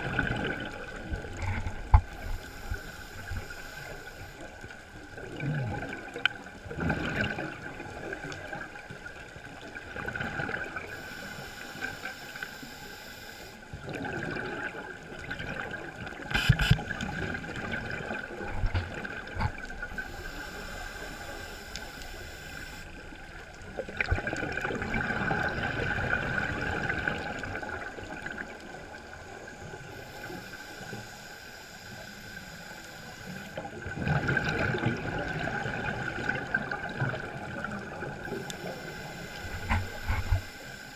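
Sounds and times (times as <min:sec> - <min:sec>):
exhaled bubbles burbling: 0:00.0 - 0:02.2, 0:05.1 - 0:08.6, 0:09.8 - 0:10.9, 0:13.8 - 0:20.0, 0:23.7 - 0:28.8, 0:33.7 - 0:38.4
hissing regulator inhale: 0:02.0 - 0:04.6, 0:10.9 - 0:13.7, 0:19.8 - 0:23.1, 0:29.8 - 0:33.9, 0:38.2 - 0:40.9.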